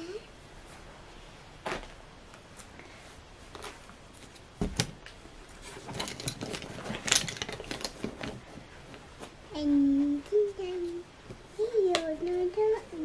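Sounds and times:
wooden puzzle pieces clattering: 0:05.6 - 0:08.4.

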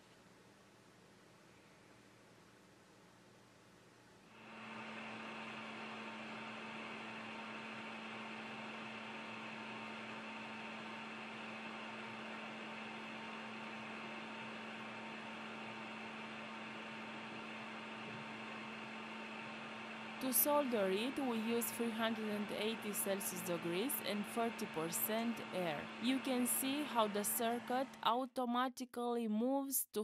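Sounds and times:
steady motor hum: 0:04.3 - 0:28.2
hot air blowing: 0:19.1 - 0:28.0.

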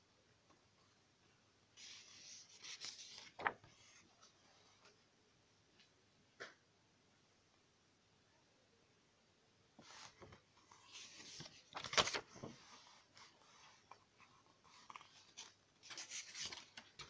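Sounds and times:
paper pages rustling: 0:01.8 - 0:04.4, 0:09.8 - 0:17.0.

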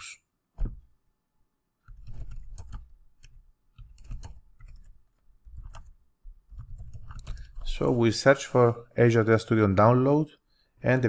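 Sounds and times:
typing on computer keyboard: 0:01.9 - 0:07.7.

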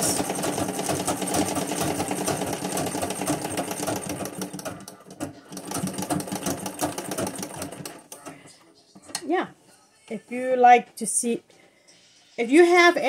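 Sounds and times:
sewing machine clattering: 0:00.0 - 0:08.3.

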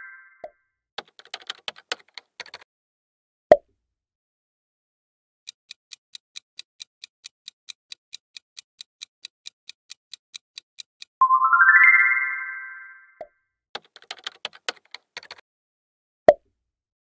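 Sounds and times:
clock-like ticking: 0:05.5 - 0:11.2
rising run of tones: 0:11.2 - 0:13.1.

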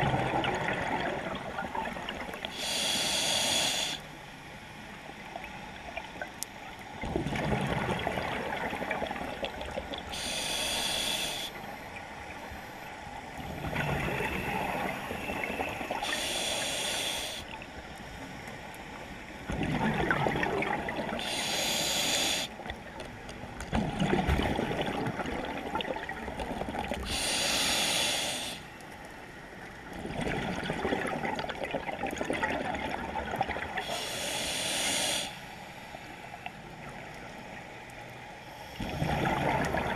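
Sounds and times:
gurgling exhaled bubbles: 0:00.0 - 0:02.5, 0:07.0 - 0:10.4, 0:13.4 - 0:16.2, 0:19.5 - 0:21.3, 0:23.7 - 0:27.3, 0:30.0 - 0:33.9, 0:38.8 - 0:39.9
regulator inhale hiss: 0:02.4 - 0:04.2, 0:10.1 - 0:11.8, 0:14.2 - 0:17.5, 0:21.2 - 0:22.6, 0:27.0 - 0:28.8, 0:33.8 - 0:36.4, 0:38.4 - 0:39.0.

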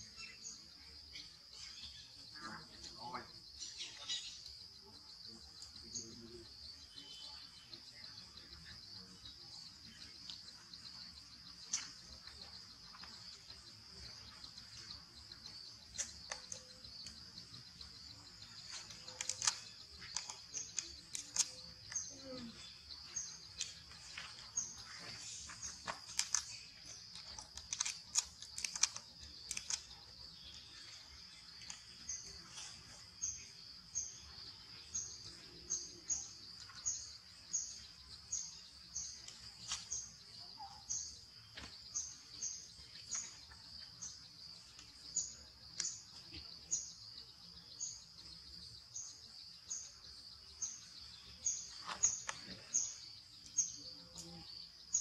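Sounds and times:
bird chirping: 0:00.0 - 0:55.0
sharp clicks: 0:15.8 - 0:17.2, 0:18.6 - 0:22.1, 0:25.8 - 0:30.0.

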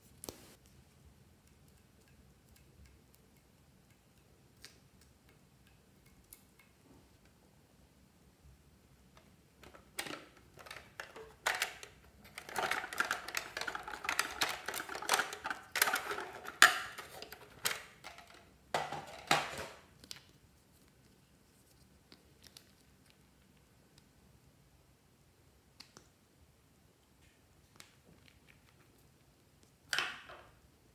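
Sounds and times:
plastic clicks and clattering: 0:09.2 - 0:20.3.

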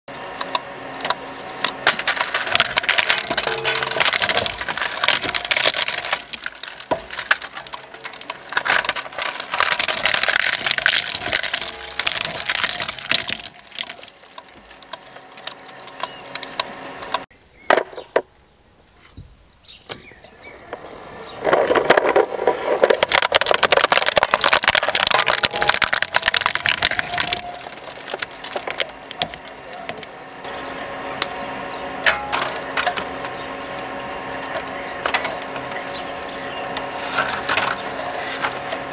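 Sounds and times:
shredder running with high whine: 0:00.1 - 0:17.3, 0:20.3 - 0:38.9
plastic cracking and crunching: 0:01.6 - 0:17.2, 0:21.4 - 0:30.2.

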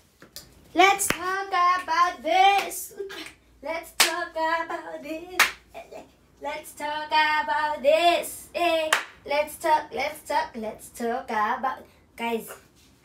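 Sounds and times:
woman singing: 0:00.8 - 0:12.6
hand claps: 0:02.6 - 0:03.4, 0:04.0 - 0:04.2, 0:05.4 - 0:05.6, 0:08.9 - 0:09.2.

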